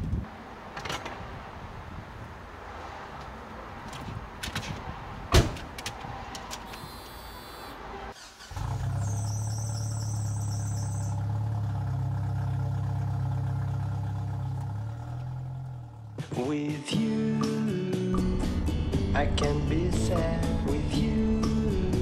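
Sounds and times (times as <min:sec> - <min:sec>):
car engine starting and idling: 0:06.4 - 0:16.3.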